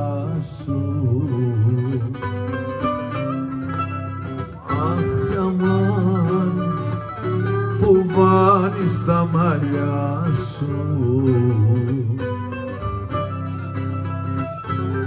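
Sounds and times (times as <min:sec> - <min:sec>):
mandolin and lutes playing: 0:00.0 - 0:15.0.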